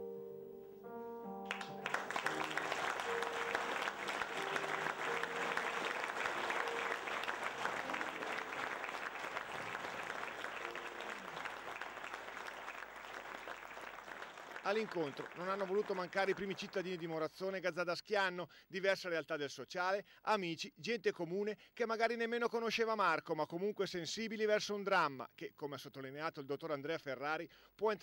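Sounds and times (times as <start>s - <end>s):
audience applauding: 1.4s - 17.2s.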